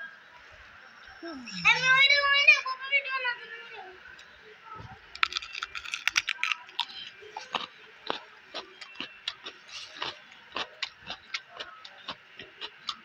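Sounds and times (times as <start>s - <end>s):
man chewing crisp vegetable: 5.2s - 13.0s.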